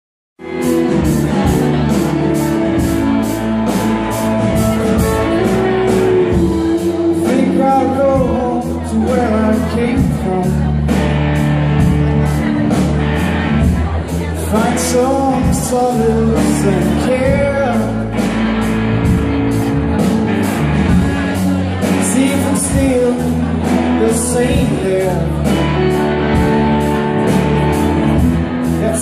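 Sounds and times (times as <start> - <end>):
drum kit cymbal beat: 0.4 - 10.3
person singing: 0.4 - 11.0, 14.3 - 18.3, 21.8 - 28.0
electric guitars: 0.4 - 29.0.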